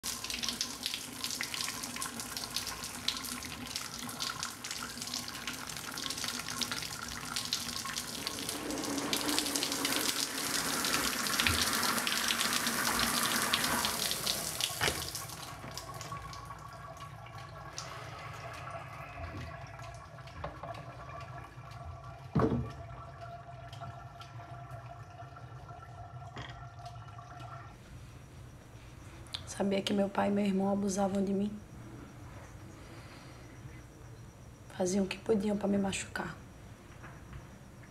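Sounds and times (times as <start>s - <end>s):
shower water spraying and splashing: 0.0s - 16.5s
faint steady hum: 0.0s - 37.9s.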